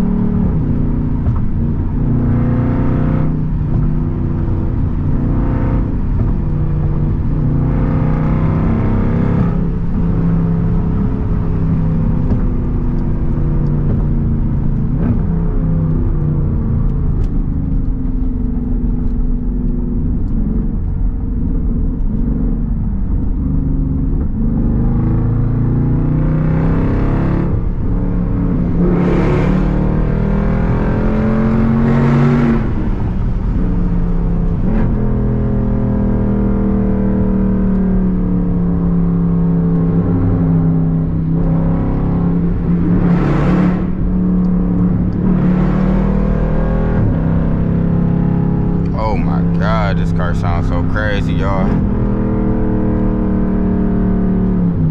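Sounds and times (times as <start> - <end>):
loud engine exhaust under load: 48.7 - 52.0.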